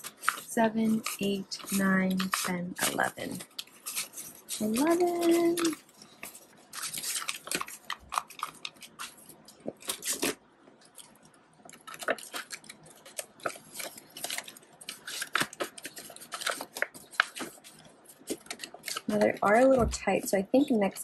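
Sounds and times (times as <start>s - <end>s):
paper banknotes rustling: 0.0s - 10.4s, 11.0s - 19.8s.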